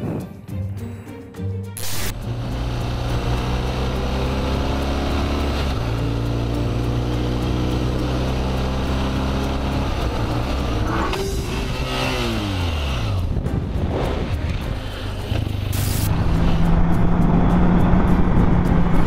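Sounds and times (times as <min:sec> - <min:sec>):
motorcycle engine running: 0:01.8 - 0:19.0.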